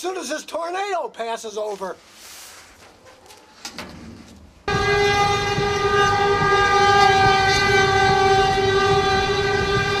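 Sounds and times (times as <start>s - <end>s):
train horn blaring: 4.7s - 10.0s.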